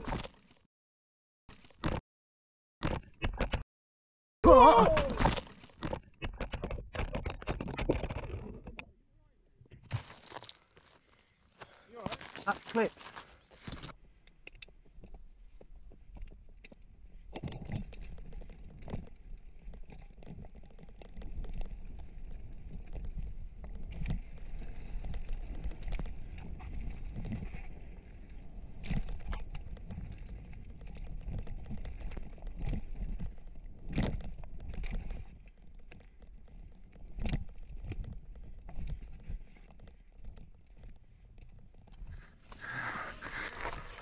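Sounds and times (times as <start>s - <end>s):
rumble of tyres and wind: 14.1s - 44.0s.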